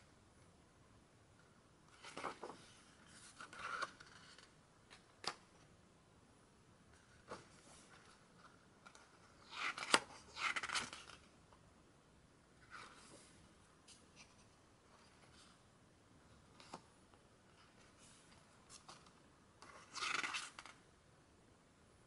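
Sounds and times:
paper pages rustling: 1.9s - 5.4s, 7.0s - 11.3s, 17.6s - 20.8s.

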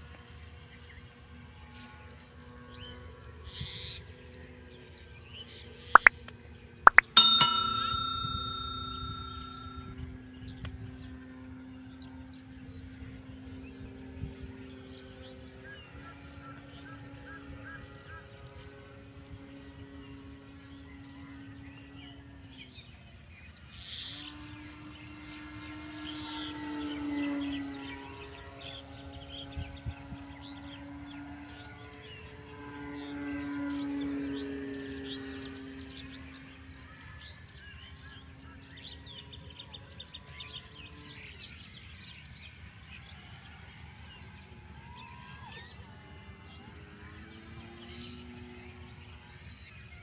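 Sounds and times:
electric model plane motor droning: 0.0s - 5.8s, 24.0s - 40.0s, 43.2s - 50.0s.

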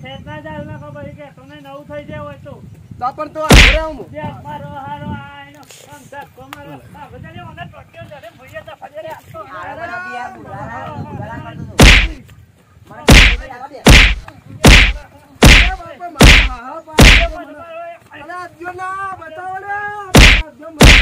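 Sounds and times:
loud slapping blows: 3.5s - 4.0s, 11.8s - 12.2s, 13.1s - 17.4s, 20.2s - 21.0s.

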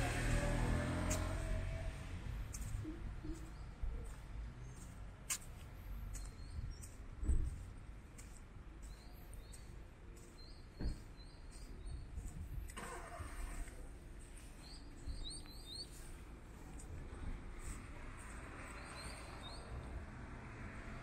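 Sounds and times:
low traffic rumble: 0.0s - 21.0s
small birds chirping: 2.5s - 12.8s, 14.2s - 19.9s.

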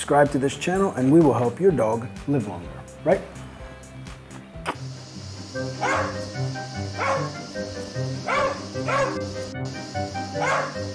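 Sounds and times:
background music: 0.0s - 10.9s
dog bark: 5.8s - 6.2s, 7.0s - 7.4s, 8.3s - 9.3s, 10.4s - 10.9s.

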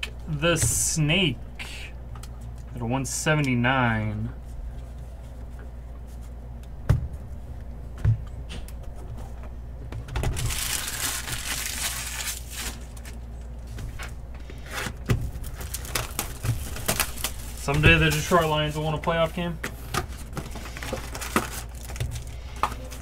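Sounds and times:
low steady hum: 0.0s - 23.0s
packaging rustling: 10.2s - 13.3s, 14.6s - 18.8s, 19.8s - 23.0s.

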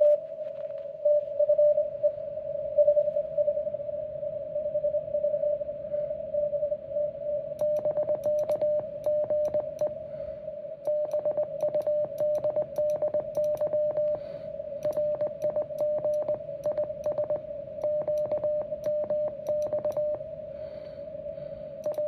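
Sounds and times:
morse code tones: 10.9s - 14.2s, 14.8s - 20.2s.

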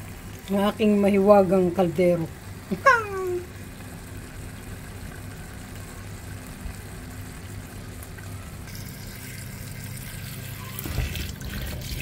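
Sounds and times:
pot simmering: 0.0s - 12.0s
tap water running into sink: 8.7s - 12.0s.

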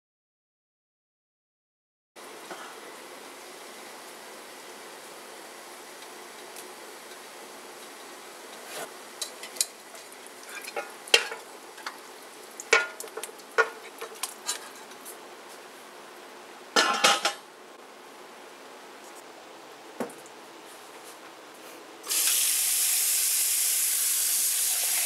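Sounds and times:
water boiling hiss: 6.7s - 14.4s, 22.0s - 25.0s
metal lid clattering: 16.8s - 17.4s.

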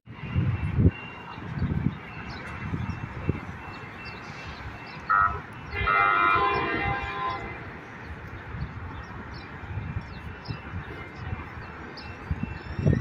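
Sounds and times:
trolley horn: 5.1s - 7.7s.

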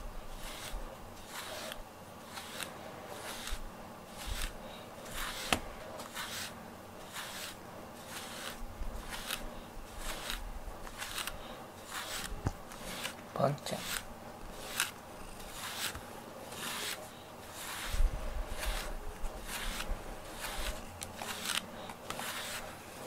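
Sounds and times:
brush swishing through cat fur: 0.1s - 23.0s.

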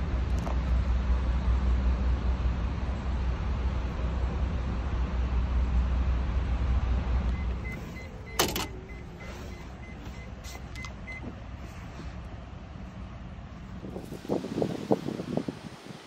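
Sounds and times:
electronic warning beep: 7.3s - 11.3s
door clunk: 8.3s - 8.8s.

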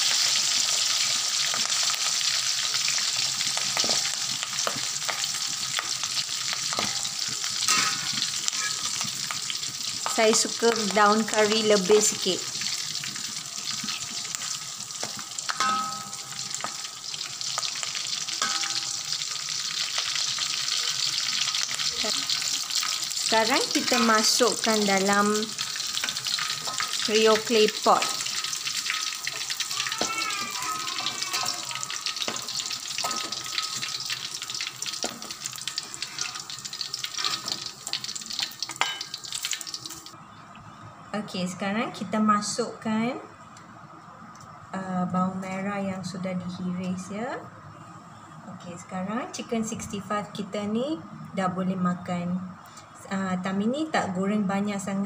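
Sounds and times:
food sizzling in hot oil: 0.0s - 40.2s
wok ringing: 2.9s - 9.3s, 14.4s - 40.1s
ladle scraping and clinking wok: 6.7s - 9.0s, 18.4s - 19.0s, 37.0s - 37.6s.

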